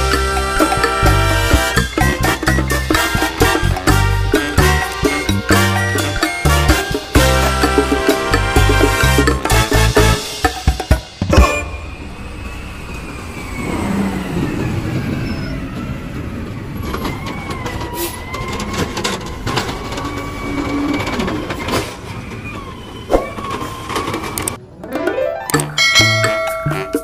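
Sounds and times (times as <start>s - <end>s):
garbage truck engine running: 0.0s - 24.6s
hydraulic arm whine: 11.3s - 16.1s.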